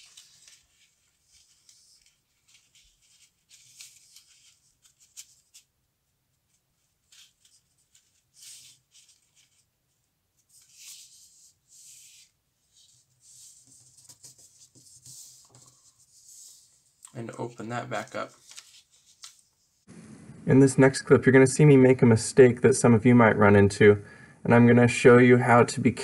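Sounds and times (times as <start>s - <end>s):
paper rustling: 0.0s - 5.7s, 6.4s - 9.8s, 10.4s - 19.8s.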